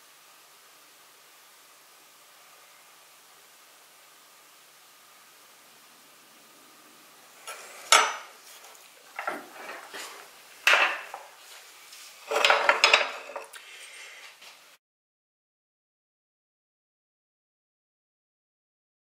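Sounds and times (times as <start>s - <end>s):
plates moved on marble: 7.4s - 8.3s, 9.1s - 11.3s, 12.2s - 13.5s
utensils clinking on crockery: 7.4s - 8.3s, 9.1s - 11.3s, 12.2s - 13.6s.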